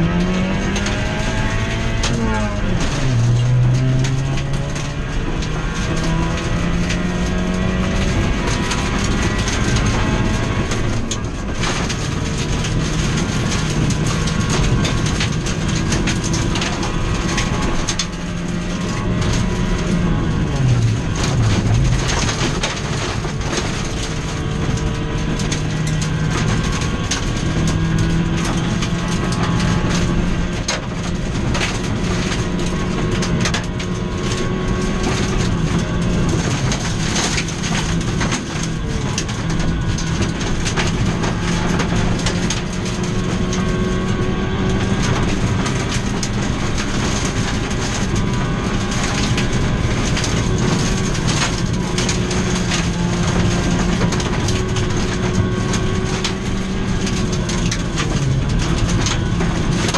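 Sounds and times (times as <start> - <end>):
rally car engine running hard: 0.0 - 59.9
gravel pinging against underbody: 0.1 - 59.9.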